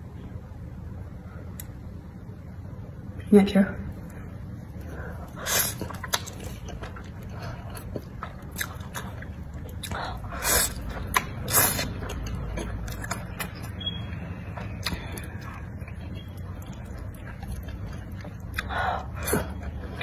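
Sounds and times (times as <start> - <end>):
wet chewing: 4.8 - 20.0.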